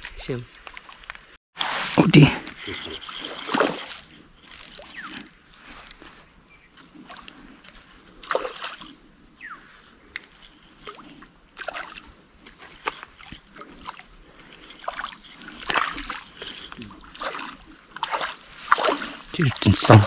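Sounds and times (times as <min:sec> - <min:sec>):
fish splashing at water surface: 0:01.6 - 0:05.0, 0:06.8 - 0:09.0, 0:10.8 - 0:14.1, 0:14.7 - 0:20.0.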